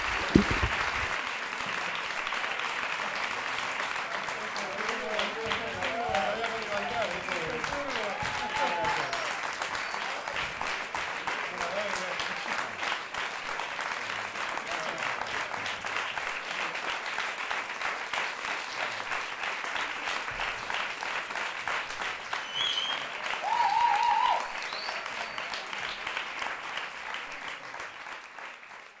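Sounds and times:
audience applauding: 0.0s - 29.0s
high wavering cry from crowd: 7.9s - 9.3s.

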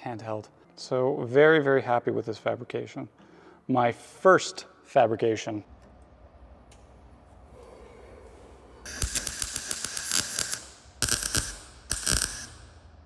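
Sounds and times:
welder arc crackling: 8.8s - 13.0s.

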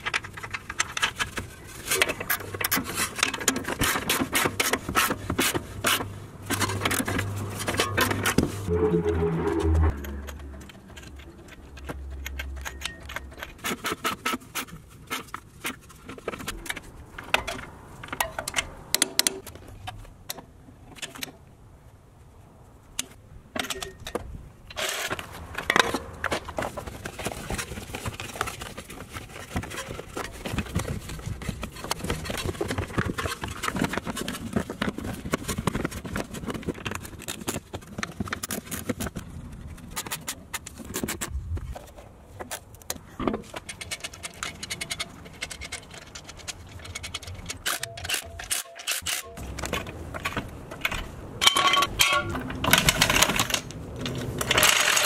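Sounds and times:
metal tools clicking and clinking: 10.0s - 13.9s, 43.6s - 55.0s.

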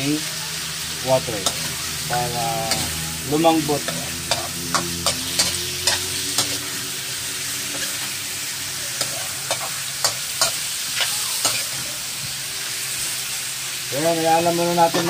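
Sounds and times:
chicken frying in oil: 0.0s - 15.0s
metal spoon scraping pan: 1.3s - 6.8s.

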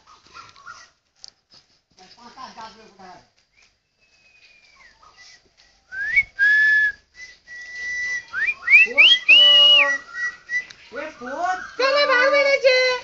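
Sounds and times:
person whistling: 5.9s - 10.7s.

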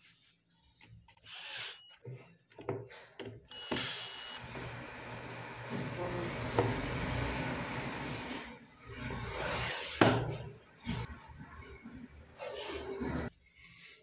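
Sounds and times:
cordless drill whining: 1.2s - 2.0s, 3.5s - 5.4s.

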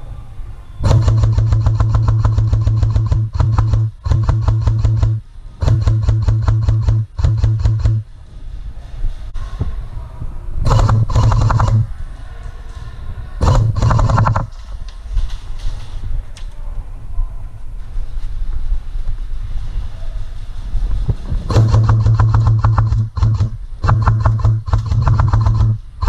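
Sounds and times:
airsoft guns firing bursts: 0.8s - 8.0s, 10.7s - 11.8s, 13.4s - 14.5s, 21.5s - 25.8s.

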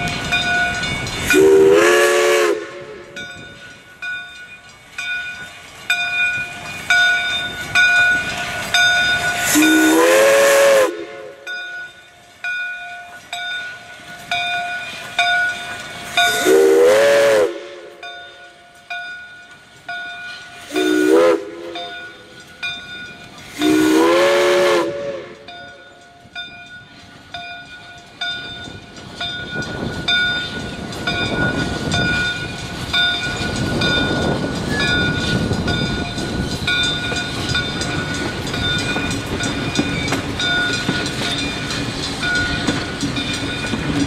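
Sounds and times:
steam locomotive whistle blasts: 1.2s - 3.4s, 9.4s - 11.6s, 16.0s - 18.2s, 20.6s - 22.3s, 23.4s - 25.9s
bell ringing: 3.1s - 10.1s, 11.4s - 16.6s, 25.4s - 44.0s.

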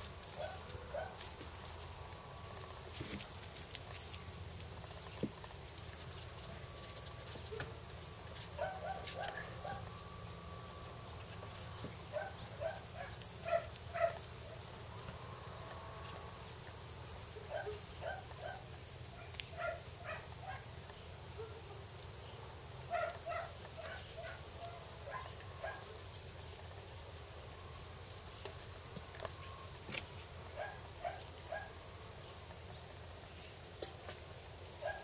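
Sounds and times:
puppies yipping and barking: 0.3s - 1.4s, 6.2s - 10.1s, 10.8s - 14.7s, 17.3s - 20.8s, 22.9s - 26.2s, 30.6s - 31.8s, 34.8s - 35.0s.

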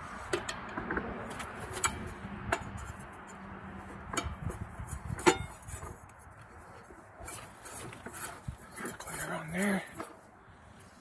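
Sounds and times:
sharp clicks of hard parts: 0.3s - 3.4s.

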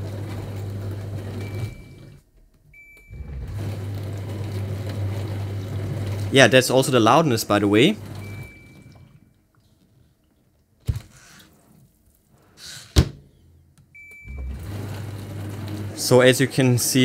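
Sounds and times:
dishwasher humming: 0.0s - 9.2s, 14.0s - 17.0s.

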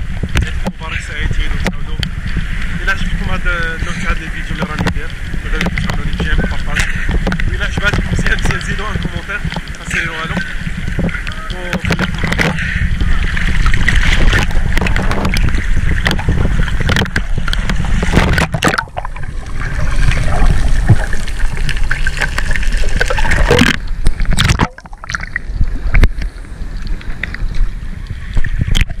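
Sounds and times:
water sloshing and splashing: 0.0s - 29.0s
gurgling: 3.7s - 26.2s
crackling clicks: 4.4s - 12.6s, 13.5s - 27.7s, 28.4s - 29.0s.

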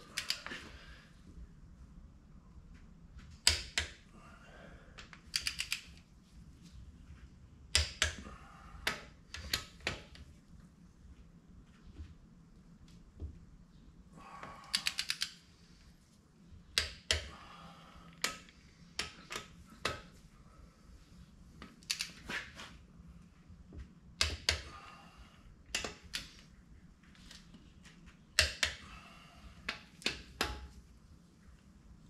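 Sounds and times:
ratchet wrench clicking: 14.7s - 15.4s.

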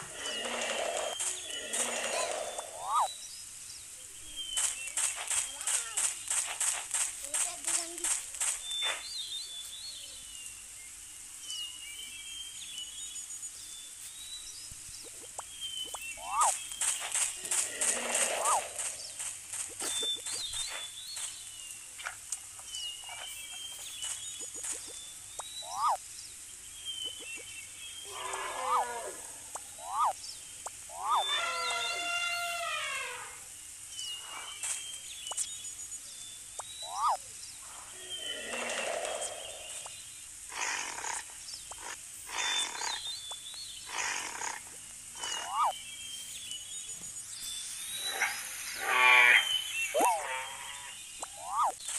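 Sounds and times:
high animal chirps and whistles: 0.1s - 3.2s, 15.0s - 18.9s, 25.4s - 26.0s, 28.1s - 30.2s, 30.9s - 33.4s, 36.6s - 37.2s, 45.2s - 45.8s, 47.9s - 51.8s
thin bird chirps: 0.2s - 40.1s, 41.5s - 43.9s, 45.2s - 51.9s
large animal harsh calls: 17.4s - 18.9s, 28.0s - 30.1s, 30.9s - 33.4s
loud rising and falling call: 28.0s - 30.2s.

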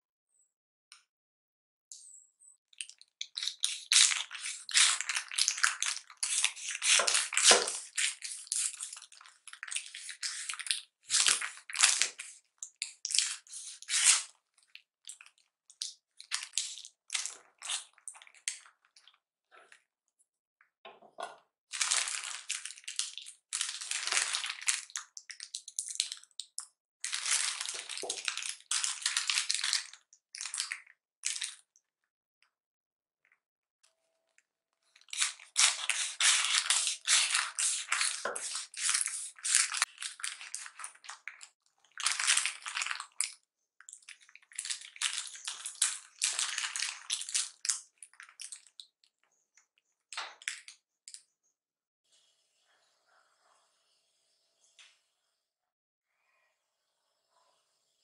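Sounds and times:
wrapping paper crinkling: 21.8s - 25.0s, 27.0s - 29.9s, 35.0s - 41.4s, 42.0s - 43.3s, 44.2s - 48.8s.

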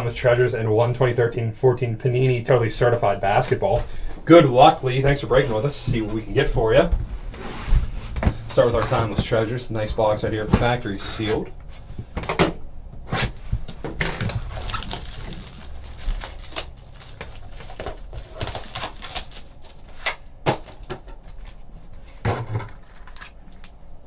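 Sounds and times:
plastic shrink wrap tearing: 14.0s - 20.1s.

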